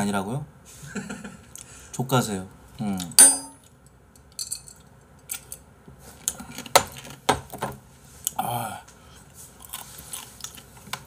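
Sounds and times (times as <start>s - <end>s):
glass clinking: 3.2s - 3.7s.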